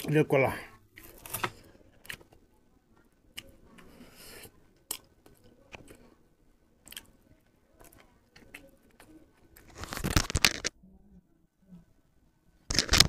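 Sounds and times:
chewing: 3.3 - 6.2, 6.8 - 9.8
banana peel rustling and tearing: 9.5 - 10.7, 12.7 - 13.0.

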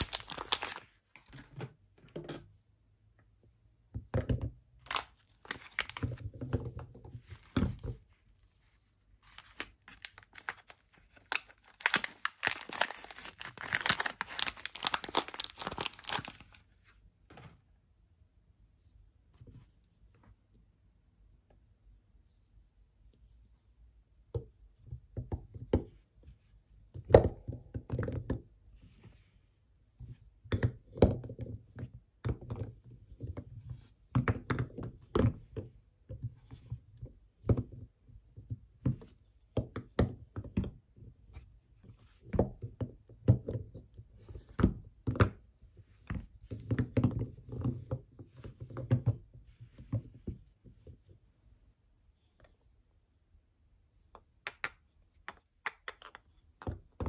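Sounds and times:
soap bars clacking together: 0.0 - 2.5, 4.0 - 8.0, 9.3 - 16.6, 54.1 - 57.0.

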